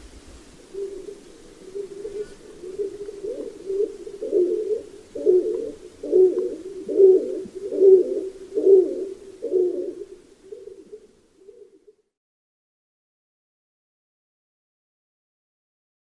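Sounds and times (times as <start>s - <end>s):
dove cooing: 0.4s - 12.1s.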